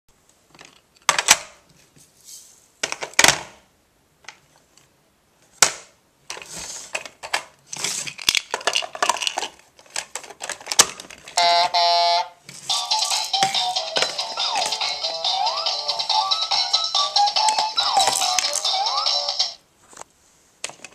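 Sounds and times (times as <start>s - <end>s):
plastic toy pieces clattering: 6.3s - 11.4s, 12.6s - 15.0s, 17.4s - 19.0s.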